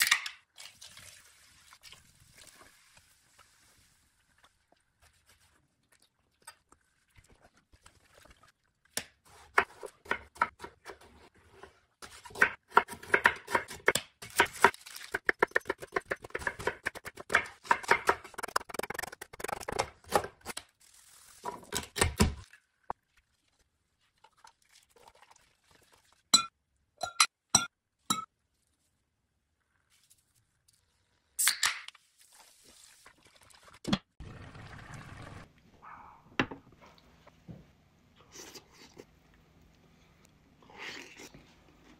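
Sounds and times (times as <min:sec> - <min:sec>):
knife chopping onion: 0:12.0 - 0:20.5.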